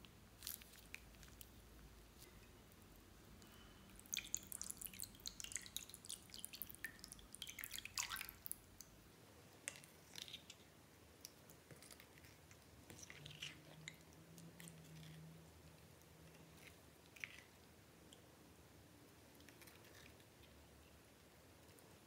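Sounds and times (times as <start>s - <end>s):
slime squelching with spatula: 11.6s - 15.3s.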